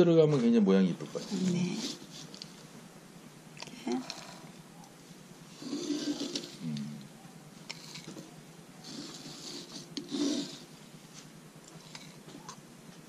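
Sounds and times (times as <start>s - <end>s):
wooden scoop scraping: 0.3s - 2.7s, 5.5s - 7.0s, 7.6s - 12.5s
dried flowers rustling: 0.6s - 2.9s.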